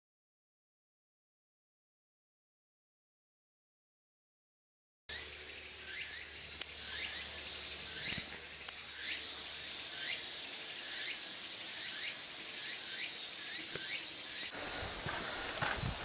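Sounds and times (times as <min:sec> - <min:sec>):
insects buzzing: 0:05.1 - 0:16.0.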